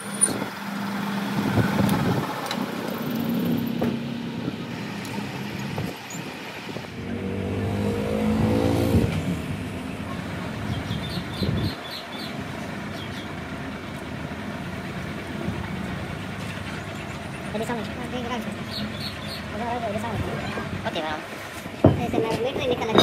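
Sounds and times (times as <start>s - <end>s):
engine rising in pitch: 0.0s - 17.5s.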